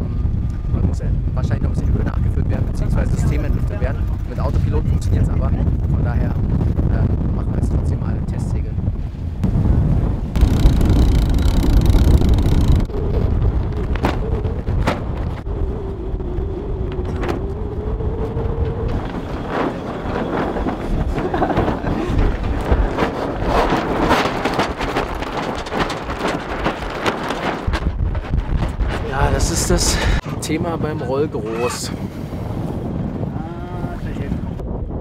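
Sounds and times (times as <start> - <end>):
wind buffeting microphone: 0.0 - 35.0
winch and rigging clicking: 10.4 - 13.0.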